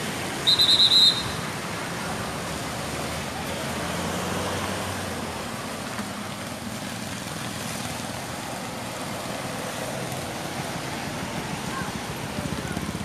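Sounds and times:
traffic on wet road: 0.0s - 13.0s.

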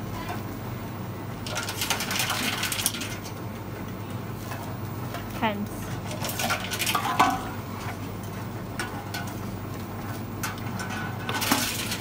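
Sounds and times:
can clattering into machine: 10.5s - 12.0s.

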